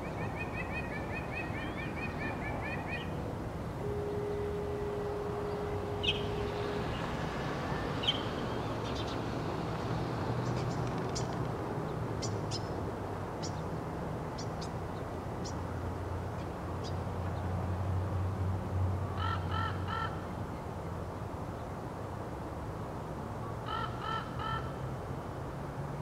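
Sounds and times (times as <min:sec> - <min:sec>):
mockingbird singing: 0:06.0 - 0:07.1.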